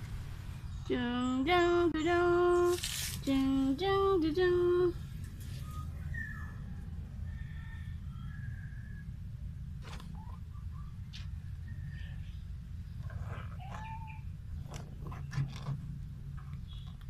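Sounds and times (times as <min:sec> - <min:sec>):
faint high squeaks: 0:13.0 - 0:14.3.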